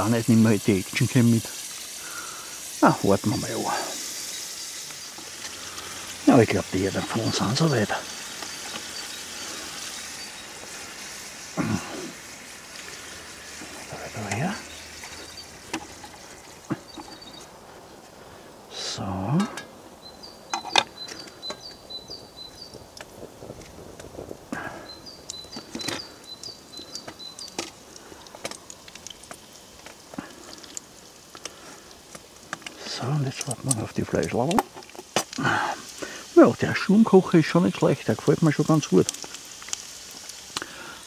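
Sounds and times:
potatoes sizzling in oil: 0.0s - 41.0s
bird calling: 2.0s - 18.5s, 19.2s - 23.0s, 24.6s - 28.8s.

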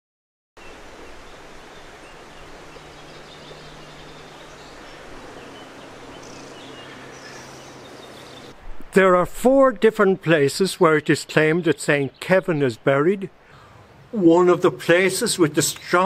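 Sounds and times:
steady rushing hiss: 0.6s - 9.1s.

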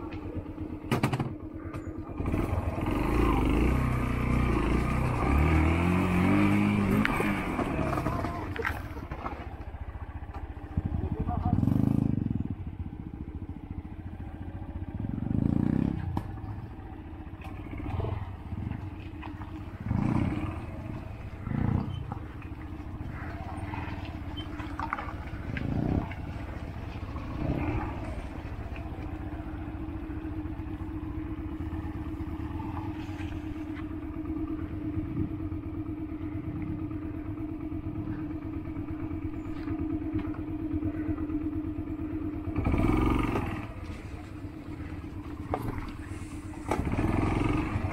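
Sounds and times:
motorcycle knocks and rattles: 0.0s - 2.4s
motorcycle engine revving: 0.0s - 47.9s.

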